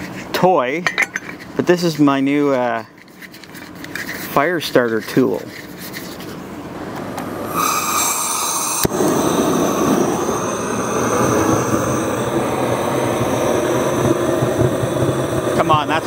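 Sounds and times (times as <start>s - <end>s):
fire starter torch whine: 6.5s - 16.0s
torch flame rushing: 6.6s - 16.0s
torch igniter click: 8.7s - 9.2s.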